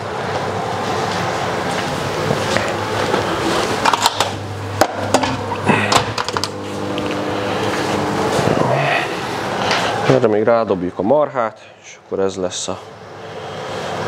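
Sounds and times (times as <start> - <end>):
microwave running hum: 0.0 - 10.9
background hum: 0.0 - 14.0.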